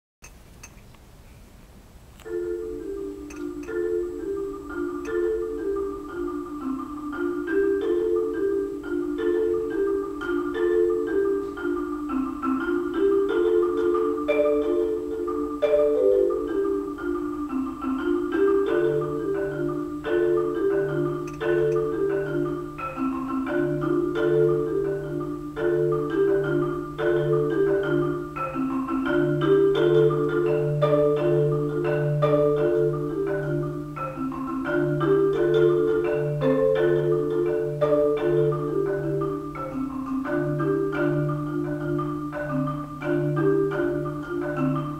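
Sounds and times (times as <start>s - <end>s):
marimba pattern: 2.2s - 44.9s.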